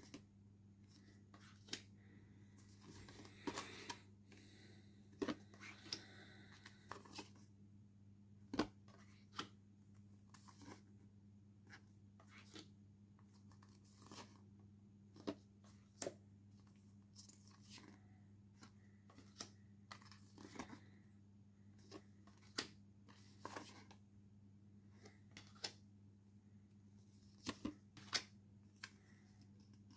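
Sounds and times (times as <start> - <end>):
postcards shuffled by hand: 0.0 - 7.5, 10.2 - 11.0, 11.6 - 14.5, 15.1 - 21.0, 21.7 - 24.0.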